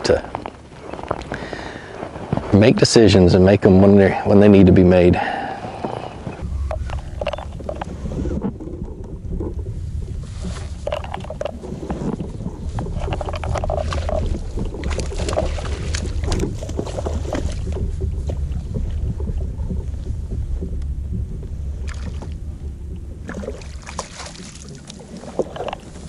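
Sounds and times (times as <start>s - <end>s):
low rumble: 3.3s - 26.0s
fish splashing at surface: 23.2s - 25.8s.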